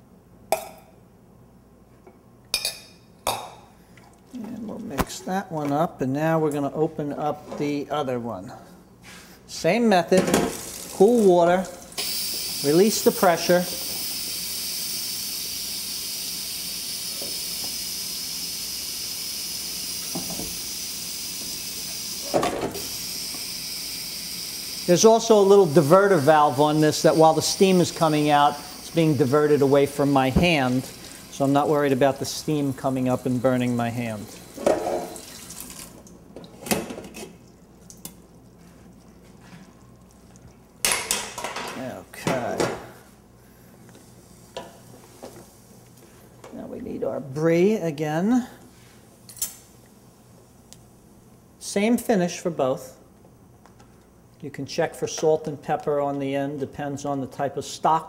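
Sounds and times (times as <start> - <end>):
tap water running over pot: 10.2 - 42.6
pressure cooker steam hissing: 12.0 - 35.2
water dripping: 37.4 - 40.9.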